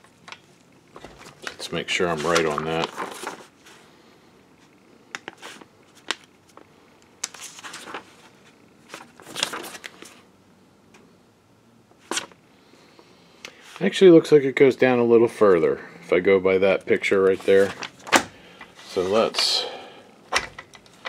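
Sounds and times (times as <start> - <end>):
paper pages rustling: 0.9 - 3.8, 5.2 - 6.6, 7.2 - 10.2, 12.0 - 12.4, 17.2 - 19.4.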